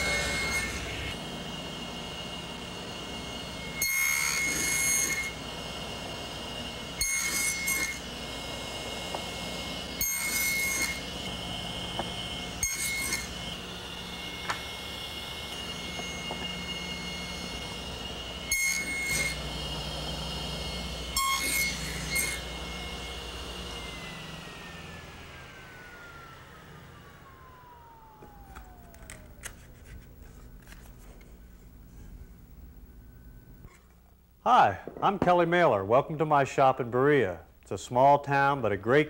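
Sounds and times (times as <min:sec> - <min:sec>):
saw blade cutting wood: 0:00.0 - 0:24.9
table saw whining: 0:00.0 - 0:34.0.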